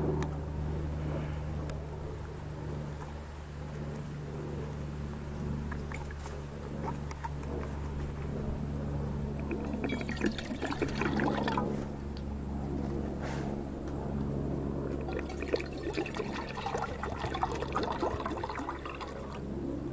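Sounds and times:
steady low hum: 0.0 - 19.9
water pouring into metal cup: 9.4 - 11.7, 15.0 - 19.4.

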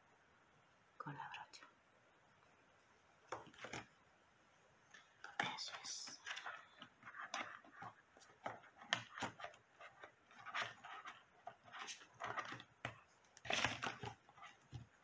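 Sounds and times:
makeup brushes rustling: 3.2 - 4.0, 4.9 - 15.0.

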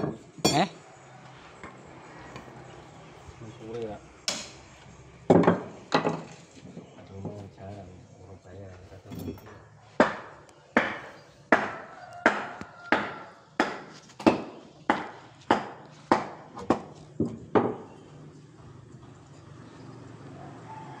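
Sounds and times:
hard strikes on wood: 10.0 - 17.9.

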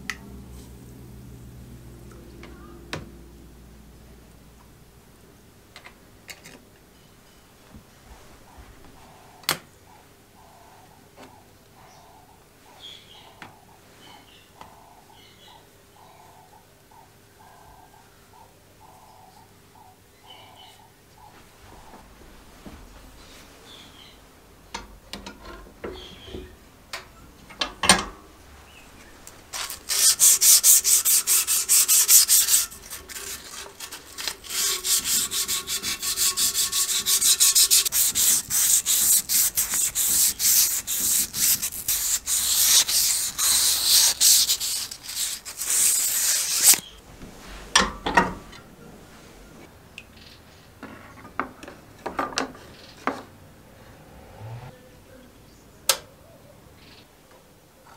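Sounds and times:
sandpaper rubbing metal rod: 29.5 - 47.0.

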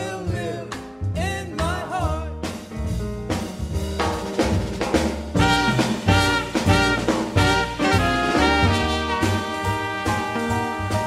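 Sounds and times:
double bass: 0.0 - 11.0
drums: 0.0 - 11.0
alto saxophone: 5.4 - 11.0
trumpet: 5.4 - 11.0.

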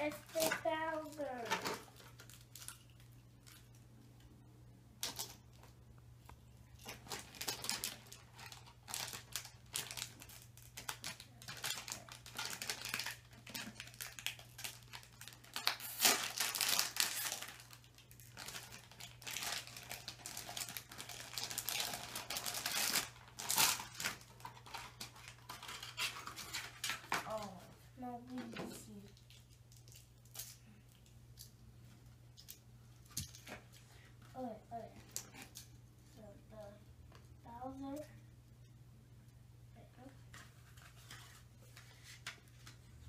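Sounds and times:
packaging crinkling and tearing: 0.0 - 3.8, 5.0 - 5.7, 6.8 - 27.5.

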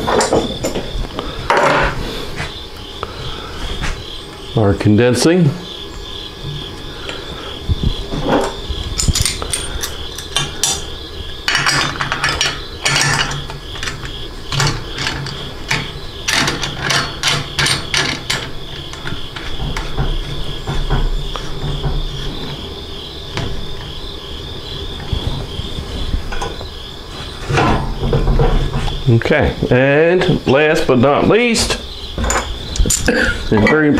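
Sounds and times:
insects chirping: 0.0 - 33.9
metal parts clinking: 8.4 - 21.6, 32.2 - 33.3
clamp fitting rattling: 8.4 - 22.3.

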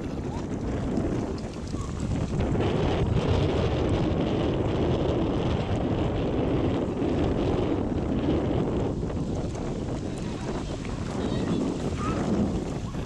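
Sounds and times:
wind blowing across microphone: 0.0 - 13.0.

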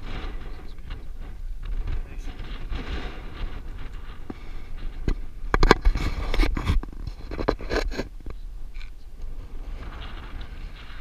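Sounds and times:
wind rumbling on microphone: 0.0 - 11.0
camera handling scrapes and knocks: 2.7 - 8.9.

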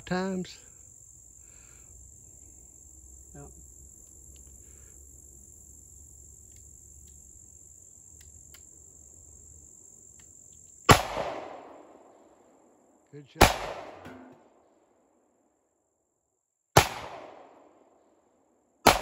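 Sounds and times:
insects buzzing: 0.0 - 15.8
pistol shot: 10.9 - 12.1, 13.4 - 14.5, 16.8 - 17.7.

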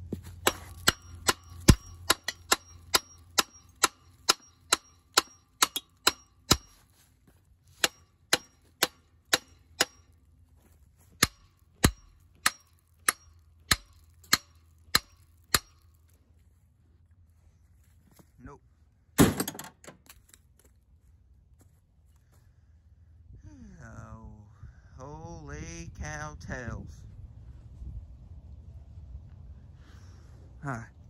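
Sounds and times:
metal hammer blows ringing: 0.4 - 6.8, 7.8 - 10.2, 11.2 - 15.8.

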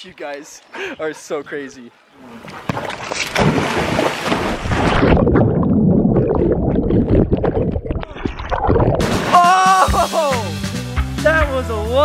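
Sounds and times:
muffled underwater rumble: 5.2 - 9.0.

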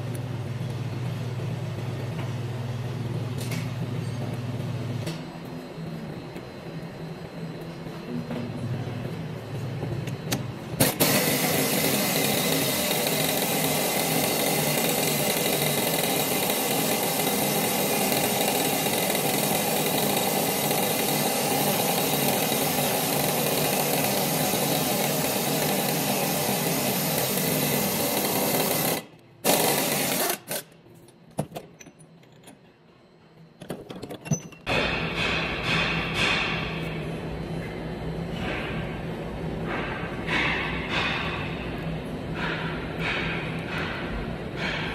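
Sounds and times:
impact wrench hammering: 10.8 - 30.6, 34.7 - 36.9, 39.7 - 41.6, 42.4 - 44.9.

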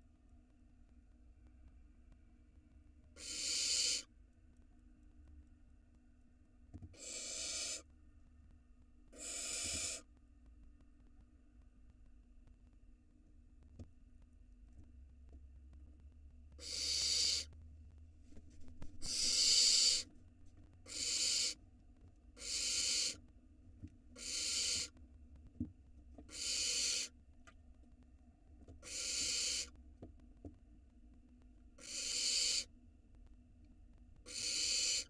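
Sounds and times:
barn owl nestlings hissing: 3.2 - 4.1, 7.0 - 7.9, 9.1 - 10.1, 16.6 - 17.5, 19.0 - 20.1, 20.8 - 21.6, 22.4 - 23.2, 24.2 - 25.0, 26.3 - 27.1, 28.8 - 29.7, 31.8 - 32.7, 34.3 - 35.0.

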